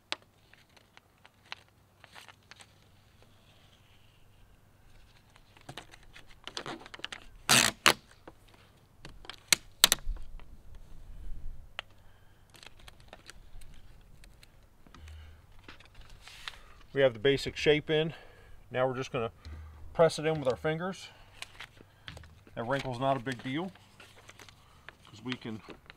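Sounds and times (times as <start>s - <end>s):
plastic film crinkling: 0.1s - 10.5s, 11.8s - 17.2s, 21.3s - 25.9s.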